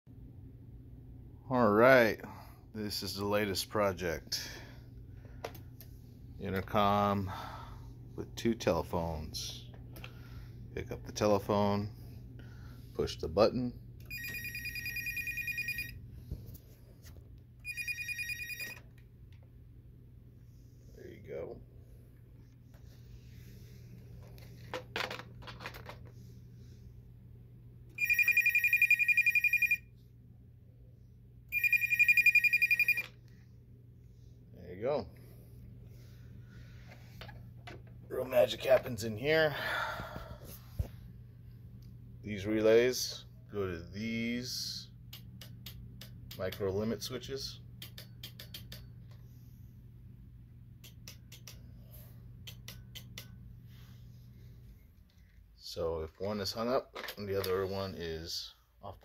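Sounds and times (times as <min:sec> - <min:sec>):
faint electrical hum: 0:00.1 - 0:59.0
electronic phone ringer warbling: 0:14.1 - 0:16.0, 0:17.7 - 0:18.8, 0:28.0 - 0:29.9, 0:31.5 - 0:33.1.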